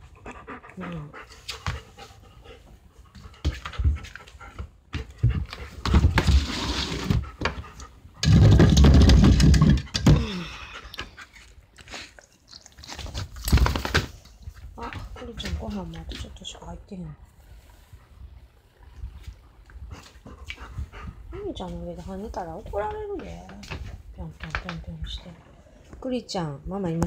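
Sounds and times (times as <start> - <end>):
dog panting rapidly: 0.0 - 6.2, 7.1 - 8.2, 14.4 - 16.6, 19.8 - 23.9.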